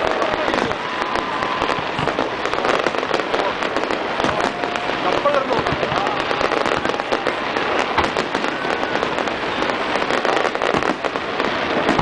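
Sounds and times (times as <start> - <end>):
fireworks popping and crackling: 0.0 - 12.0
heavy fireworks bangs: 0.0 - 12.0.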